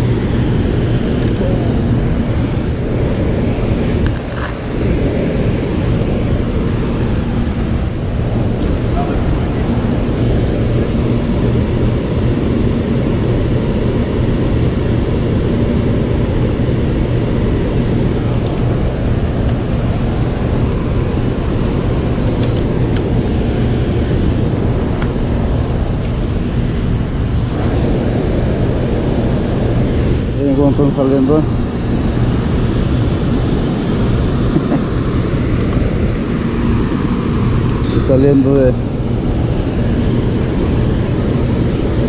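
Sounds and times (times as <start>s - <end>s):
low steady hum: 0.0s - 42.0s
water roaring through spillway: 0.0s - 42.0s.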